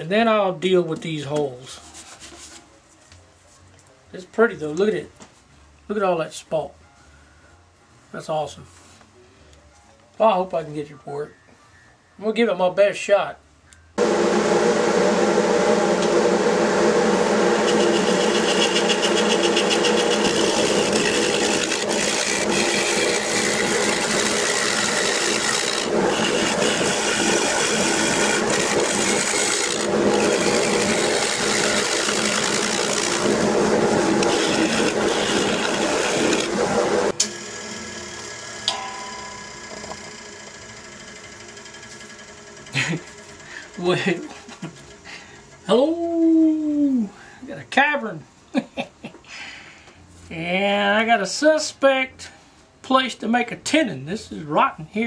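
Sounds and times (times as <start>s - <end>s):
lathe running hum: 14.0s - 38.8s, 39.4s - 45.6s
gouge cutting wood on lathe: 16.0s - 38.6s, 39.8s - 43.9s.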